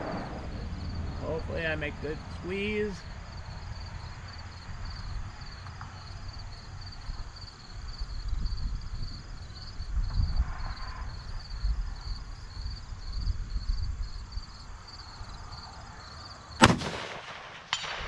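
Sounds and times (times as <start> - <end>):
wind gusting on microphone: 0.0 - 15.9
insects chirping: 0.0 - 18.0
rifle shot: 16.6 - 18.0.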